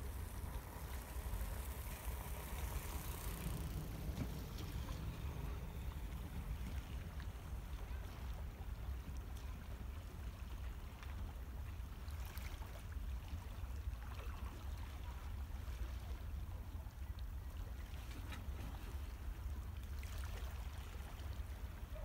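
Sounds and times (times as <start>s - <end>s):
low rumble: 0.0s - 8.9s
water lapping around rocks: 0.0s - 22.0s.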